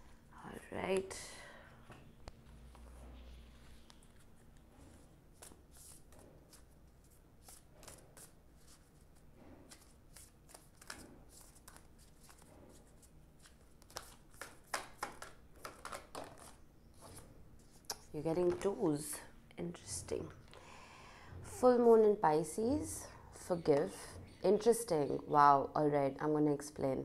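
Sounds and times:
cards being shuffled: 5.4s - 9.0s, 9.7s - 18.6s.

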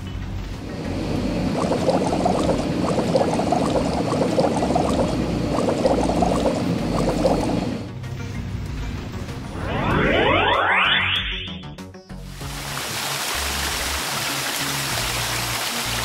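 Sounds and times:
bubbling frothy foam popping: 1.4s - 7.8s.

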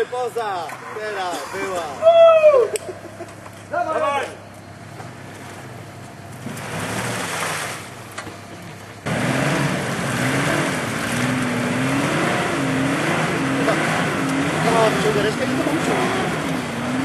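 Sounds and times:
engine revving under load: 4.8s - 8.0s, 9.0s - 17.0s.

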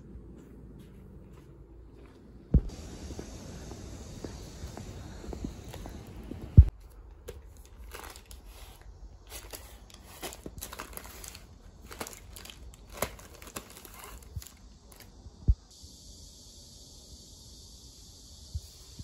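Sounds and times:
dull thump: 2.5s - 2.8s
plastic packaging crinkling: 7.2s - 15.1s.

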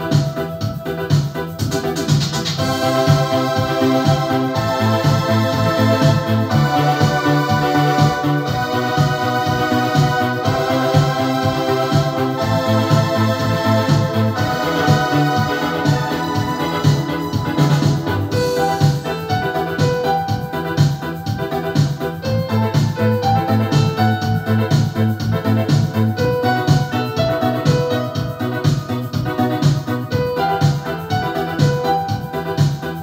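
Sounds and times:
keyboard chords: 0.0s - 33.0s
pulsing bass line: 0.0s - 33.0s.

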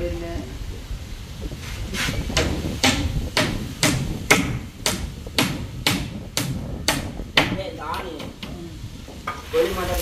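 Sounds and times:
hand tool knocking: 2.3s - 8.6s.

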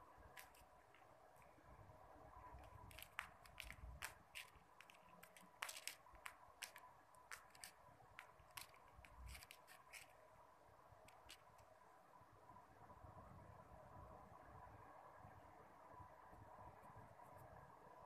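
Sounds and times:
kitten claws scratching a mat: 0.2s - 1.6s, 2.4s - 10.2s, 11.1s - 11.7s.

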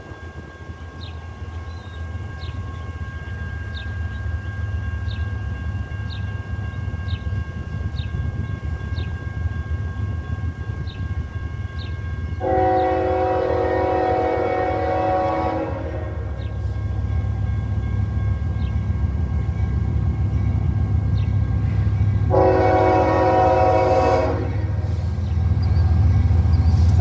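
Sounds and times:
train horn chord: 11.8s - 16.9s, 21.7s - 25.1s.

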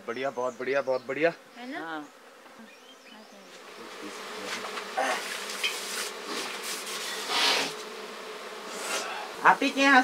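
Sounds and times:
bees buzzing: 0.0s - 10.0s
rustling: 3.5s - 8.0s.

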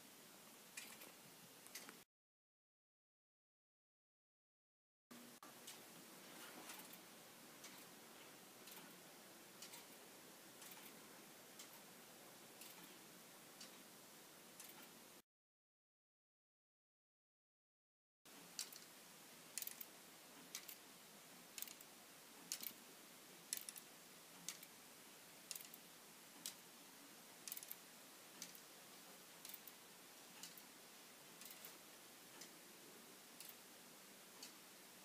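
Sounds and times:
clock ticking: 0.7s - 2.0s, 5.2s - 13.9s, 14.5s - 15.0s, 18.3s - 20.9s, 21.5s - 24.8s, 25.4s - 34.8s.

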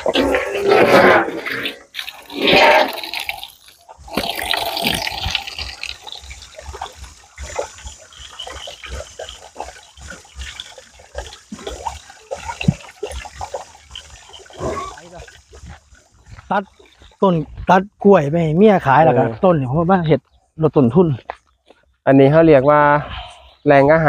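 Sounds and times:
pigs chewing feed: 0.0s - 17.6s
water stream splashing: 0.0s - 20.0s.

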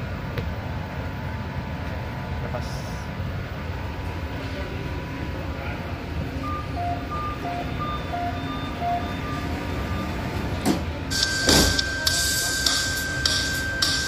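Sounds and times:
subway train rumble: 0.0s - 14.0s
electronic high-low beeps: 6.4s - 10.2s, 11.1s - 14.0s
high steady tone: 6.4s - 10.2s, 11.1s - 14.0s
noisy bursts: 11.0s - 14.0s.

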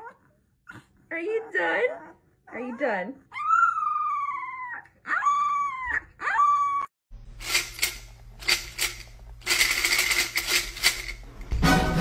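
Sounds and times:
puppy howling: 1.4s - 7.0s
kibble rattling in a shaken bowl: 7.4s - 11.2s.

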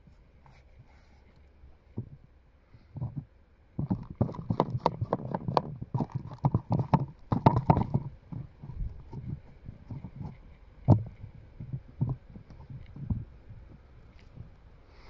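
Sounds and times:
knocks and scrapes on wooden boards: 2.8s - 14.5s.

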